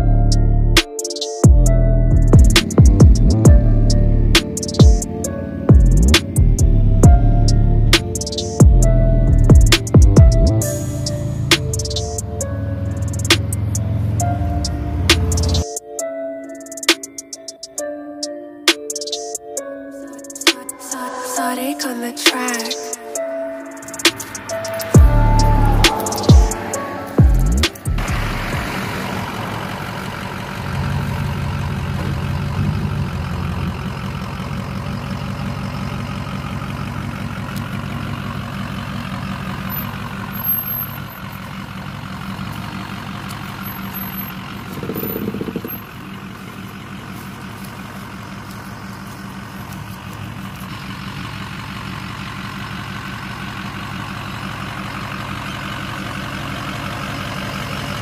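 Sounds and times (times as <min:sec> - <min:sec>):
diesel engine idling: 0:01.4 - 0:17.9, 0:19.5 - 0:58.0.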